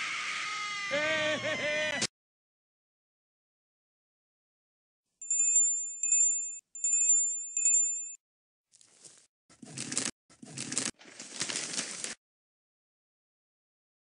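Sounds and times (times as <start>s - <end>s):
high bell-like chime: 5.2s - 8.2s.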